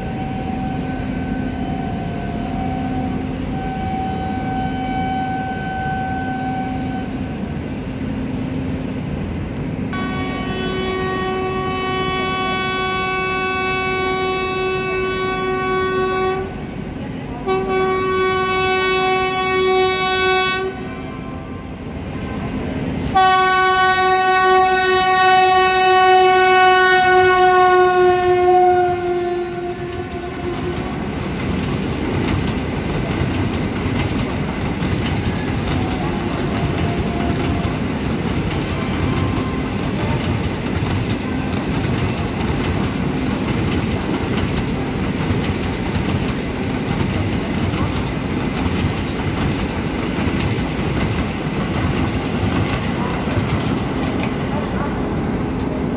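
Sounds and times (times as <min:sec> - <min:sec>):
train horn: 0:00.0 - 0:07.5, 0:09.9 - 0:31.4, 0:35.3 - 0:40.4
train wheels clattering over rails: 0:29.5 - 0:55.9.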